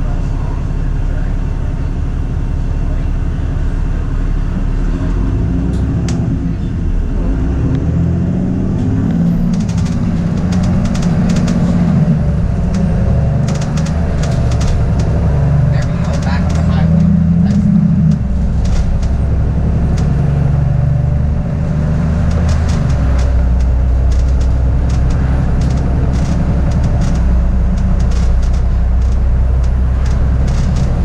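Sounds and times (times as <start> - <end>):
bus engine running: 0.0 - 31.0
road rumble: 0.0 - 31.0
rattling clicks: 8.8 - 21.1, 21.8 - 31.0.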